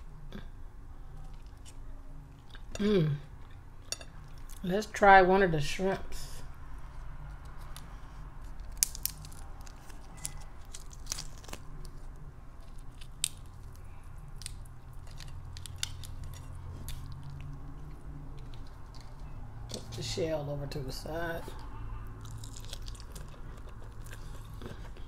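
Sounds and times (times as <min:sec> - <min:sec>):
low steady hum: 0:00.0 - 0:25.0
shrimp shell cracking: 0:08.6 - 0:12.1, 0:12.7 - 0:17.5.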